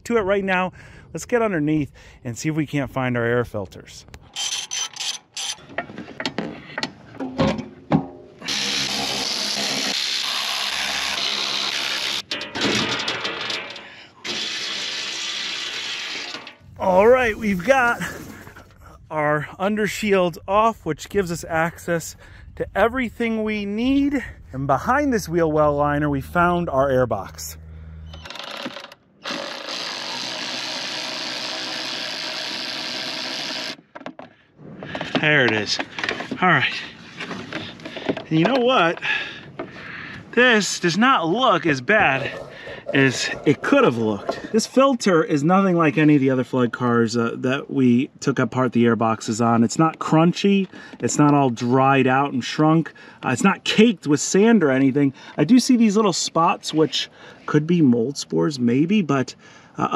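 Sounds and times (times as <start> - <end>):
electric ratchet running: 4.4 - 5.6, 8.4 - 12.3, 14.2 - 16.5, 28.2 - 33.8.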